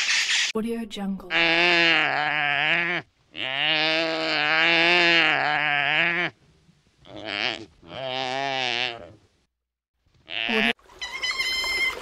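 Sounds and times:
animal bleating: 1.3s - 6.4s, 7.0s - 9.2s, 10.3s - 11.8s.

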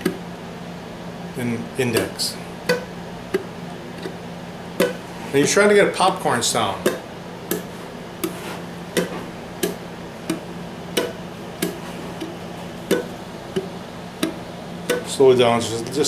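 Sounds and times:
muted ukulele strings plucked: 9.0s - 15.1s.

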